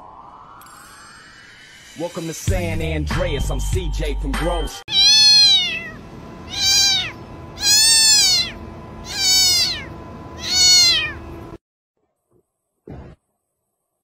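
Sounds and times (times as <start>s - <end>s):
cat meowing: 4.9s - 11.3s.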